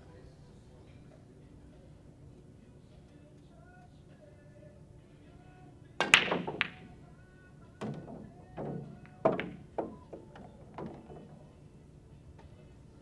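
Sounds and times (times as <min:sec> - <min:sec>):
pool balls clicking together: 0:06.0 - 0:06.9, 0:07.8 - 0:11.5
cue ball cracking into racked balls: 0:06.0 - 0:07.0, 0:07.8 - 0:11.4.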